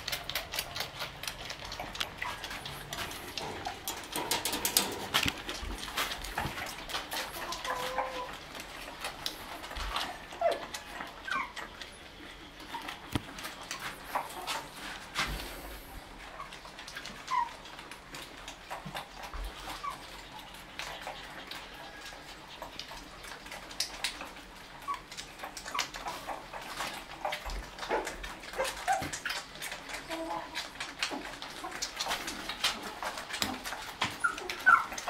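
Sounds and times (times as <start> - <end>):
puppies squeaking cries: 0.0 - 3.0, 6.9 - 8.5, 9.9 - 13.1, 16.3 - 17.9, 27.2 - 32.1, 33.0 - 35.0.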